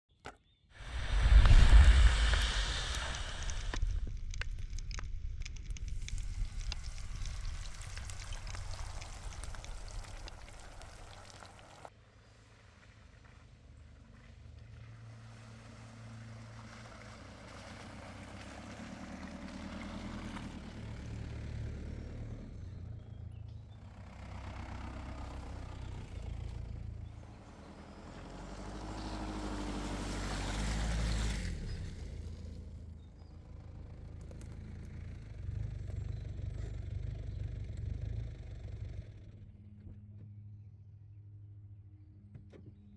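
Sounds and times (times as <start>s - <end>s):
sharp crackling clicks: 0.8s - 11.9s
car engine rumble: 0.8s - 42.9s
tyres sloshing through puddles: 5.7s - 20.6s.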